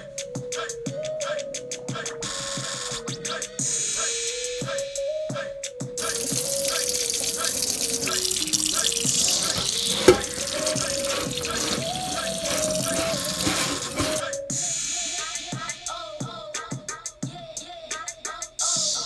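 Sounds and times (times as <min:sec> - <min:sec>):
background music with beat: 0:00.0 - 0:19.0
tap water running in sink: 0:06.0 - 0:14.2.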